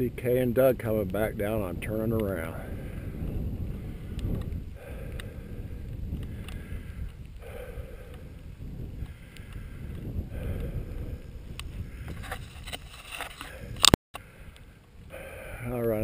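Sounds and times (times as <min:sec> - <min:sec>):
wind buffeting microphone: 0:00.0 - 0:16.0
faint clicks: 0:04.1 - 0:10.7.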